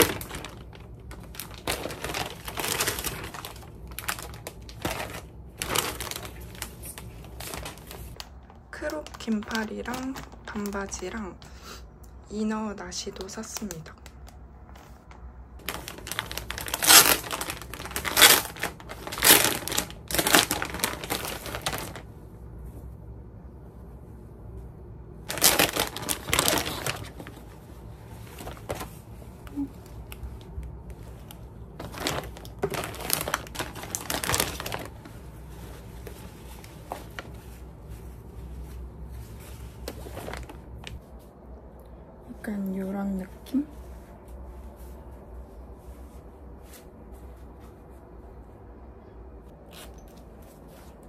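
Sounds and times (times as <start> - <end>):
plastic bags crinkling: 0.0 - 11.4, 15.6 - 22.1, 25.2 - 41.0
fabric rustling: 0.0 - 11.5, 14.7 - 41.5, 42.4 - 48.8, 49.4 - 51.0.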